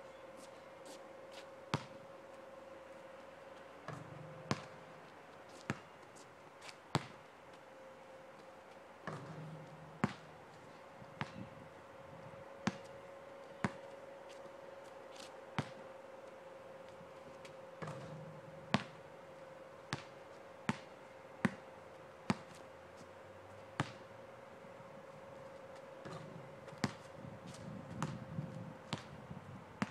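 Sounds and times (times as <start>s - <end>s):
basketball bouncing on asphalt: 1.7s - 2.0s, 3.8s - 6.0s, 6.6s - 7.2s, 9.0s - 11.5s, 12.6s - 14.0s, 15.6s - 15.8s, 17.4s - 19.1s, 19.8s - 21.7s, 22.3s - 22.6s, 23.7s - 24.1s, 25.8s - 29.2s.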